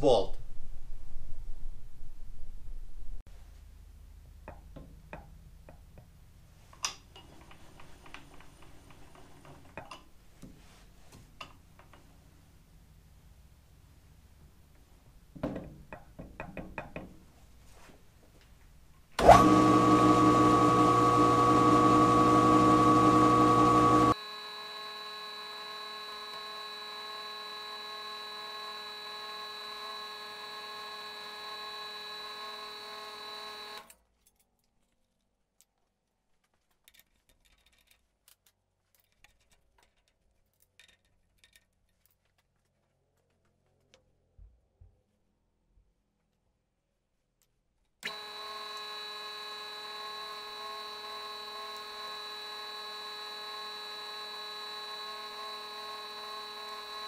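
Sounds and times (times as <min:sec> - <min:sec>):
milling machine motor whine: 0:19.2 - 0:33.9, 0:48.0 - 0:57.0.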